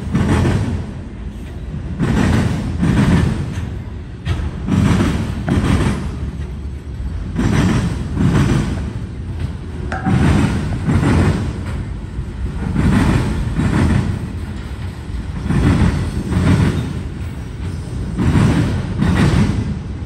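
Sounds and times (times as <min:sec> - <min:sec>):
train wheels rumbling and clacking: 0:00.0 - 0:20.0.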